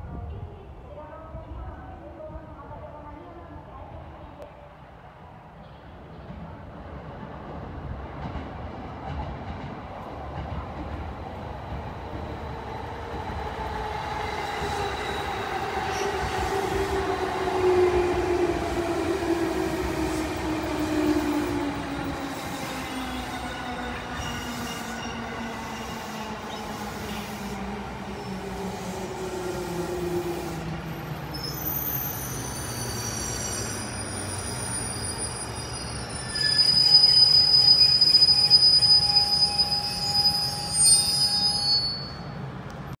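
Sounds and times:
high brake squeal: 22.9s - 28.4s, 31.3s - 42.5s.

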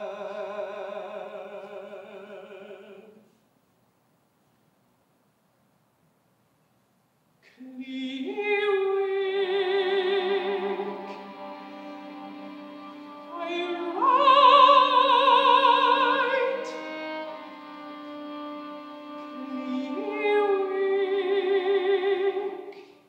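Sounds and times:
mezzo-soprano singing with vibrato: 0.0s - 3.3s, 7.5s - 18.2s, 19.0s - 23.0s
string quartet low chords: 8.3s - 23.0s.

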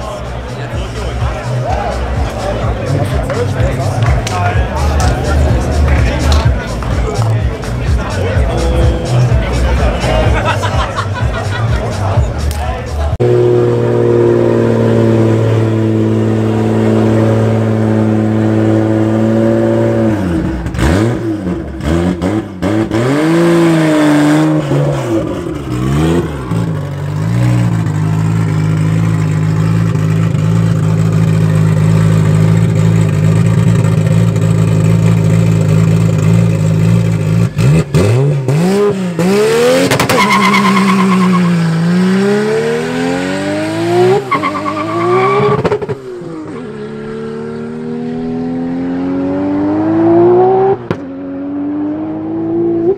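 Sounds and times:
car engine revving: 0.0s - 52.9s
car accelerating through gears: 37.1s - 52.9s.

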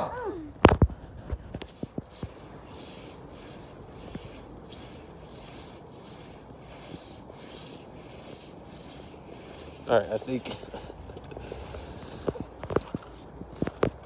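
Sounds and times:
brushing swish through snow: 1.4s - 12.2s.

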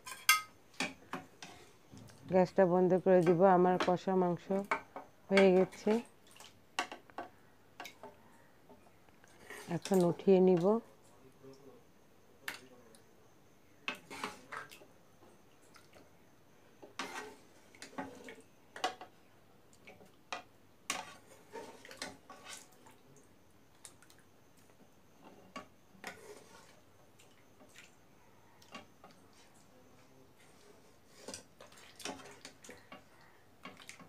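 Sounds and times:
metal ladle scraping a pan: 13.9s - 14.5s, 16.9s - 18.3s, 20.9s - 22.7s.

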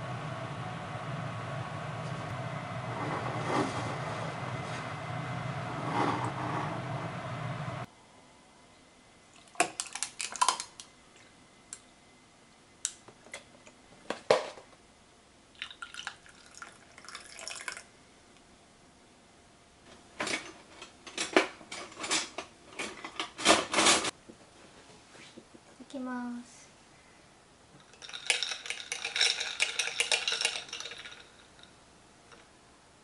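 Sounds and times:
dishes and utensils clinking: 27.8s - 31.7s.

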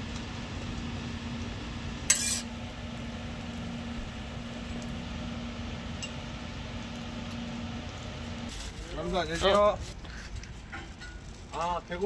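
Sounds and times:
kitchen equipment humming: 0.0s - 8.5s.

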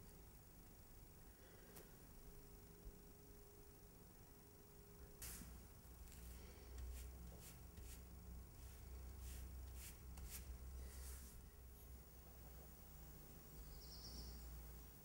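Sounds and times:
low room hum: 0.0s - 15.0s
paintbrush strokes on canvas: 5.2s - 12.0s.

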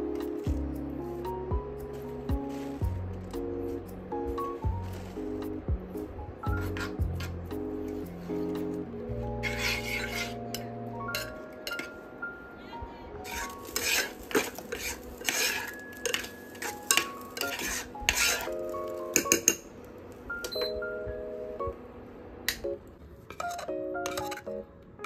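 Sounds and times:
background music with sustained notes: 0.0s - 25.0s
spoon scraping porridge in saucepan: 9.4s - 10.4s, 13.3s - 18.6s.

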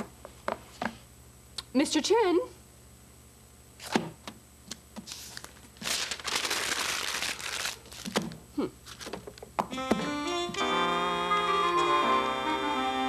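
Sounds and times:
paper crinkling and rustling: 5.0s - 9.3s.

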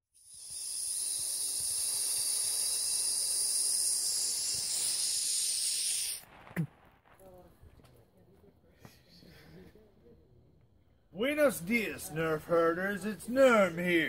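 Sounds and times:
steady high-pitched hiss: 0.2s - 6.8s.

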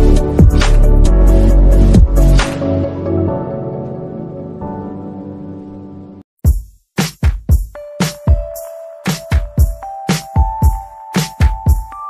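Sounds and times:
electronic music with kick drum: 0.0s - 2.9s, 6.4s - 12.0s.

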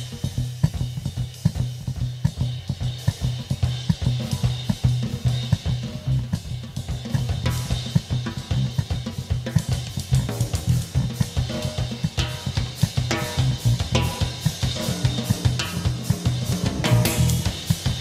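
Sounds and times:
drum kit played fast: 0.0s - 18.0s
low bass: 10.2s - 11.1s, 13.3s - 14.4s, 16.6s - 17.6s.

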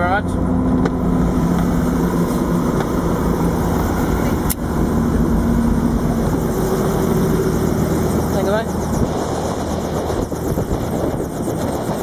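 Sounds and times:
helicopter engine and rotor: 0.0s - 12.0s.

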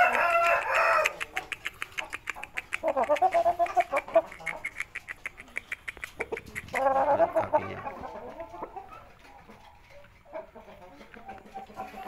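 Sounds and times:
rooster calling: 0.0s - 1.3s
quick sharp ticks: 0.2s - 6.9s.

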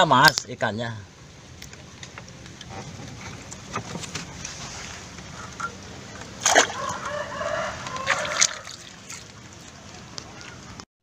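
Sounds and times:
water sloshing: 1.1s - 10.8s
fish splashing into water: 4.4s - 10.8s.

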